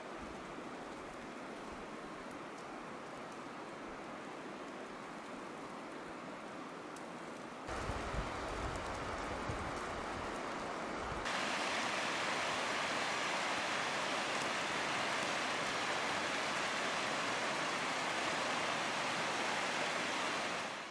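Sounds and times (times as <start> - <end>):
river rushing: 0.1 - 20.9.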